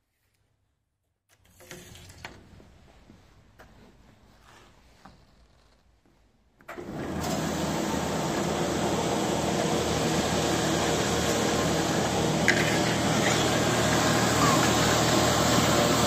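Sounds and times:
dough sheeter motor humming: 0:06.7 - 0:16.0.

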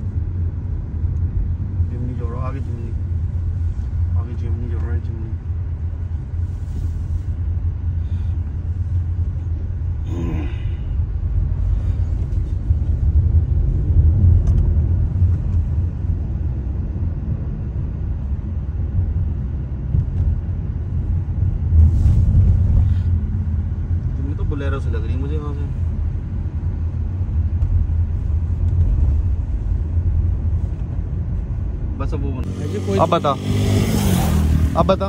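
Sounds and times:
car driving rumble from inside: 0:00.0 - 0:35.0.

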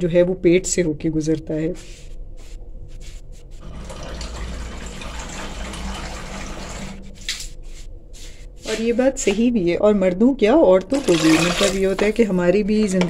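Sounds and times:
water running from tap: 0:03.6 - 0:07.2, 0:10.9 - 0:12.2.

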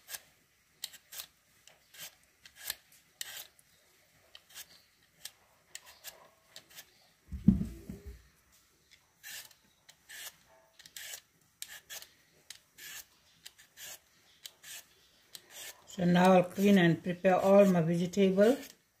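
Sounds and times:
peeler scraping potato: 0:00.0 - 0:03.7, 0:04.3 - 0:07.0, 0:09.2 - 0:18.9
low rumbling thump: 0:07.3 - 0:08.2.

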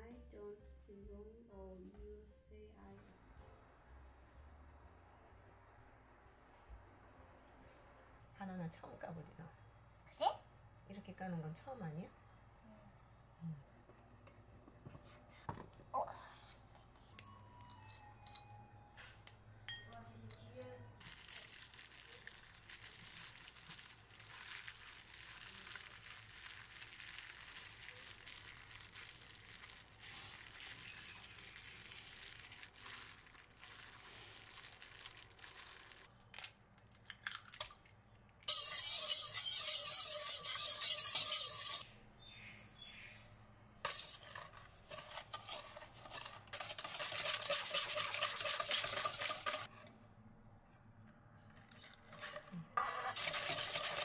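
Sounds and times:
hand rubbing butter into flour: 0:38.5 - 0:41.8, 0:43.9 - 0:49.7, 0:52.1 - 0:54.0
whisk rattling in steel bowl: 0:38.5 - 0:41.8, 0:43.9 - 0:49.7, 0:52.1 - 0:54.0.

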